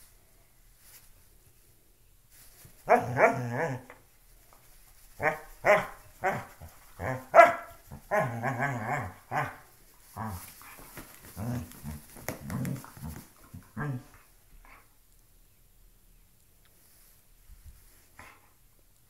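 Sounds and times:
dog barking: 2.8 - 3.8, 5.2 - 9.6
dog growling: 6.2 - 9.6, 11.3 - 14.2.

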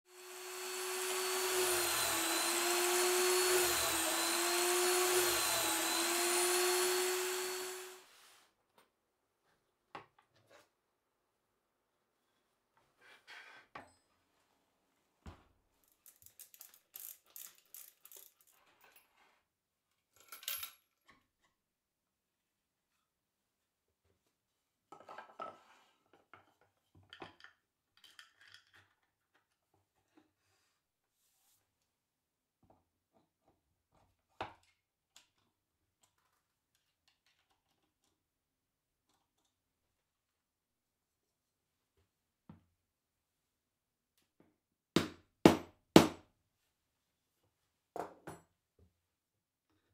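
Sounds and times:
small metallic clicks and clinks: 15.8 - 19.1.

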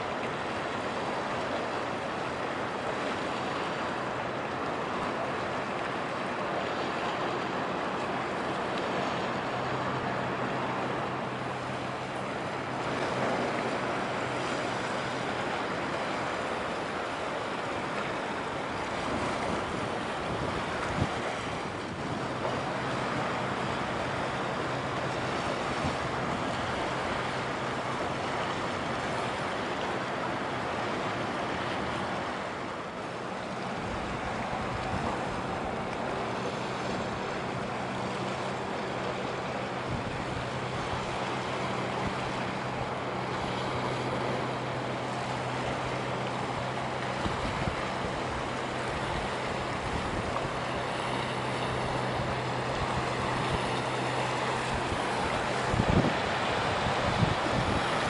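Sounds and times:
ship engine hum: 0.0 - 58.0
water washing along shore: 0.0 - 58.0
wind: 0.0 - 58.0.

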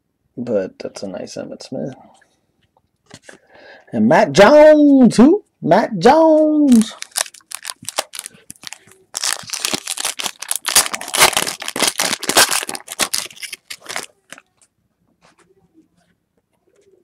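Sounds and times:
foil wrapper crinkling: 6.7 - 14.6.

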